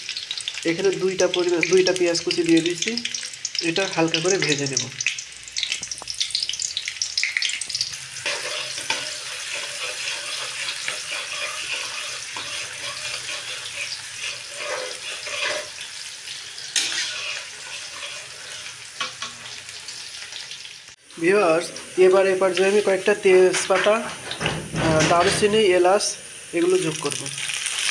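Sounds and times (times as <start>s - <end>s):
onions sizzling in hot oil: 0.0s - 27.9s
metal spatula scraping pan: 8.2s - 20.0s.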